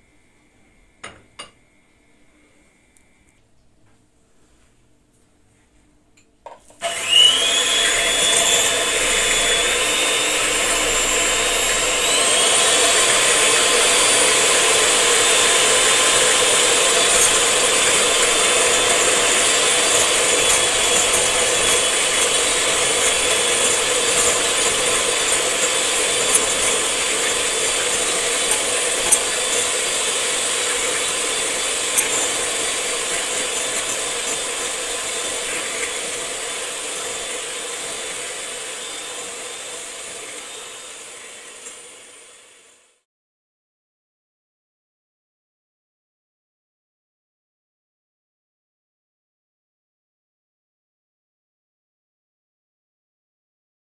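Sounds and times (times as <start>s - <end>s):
electric hand mixer whining: 6.8s - 43.0s.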